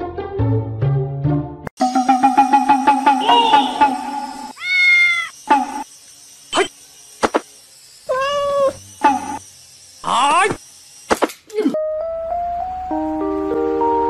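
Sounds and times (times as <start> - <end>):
cat meowing: 4.5 - 5.4, 8.1 - 8.8.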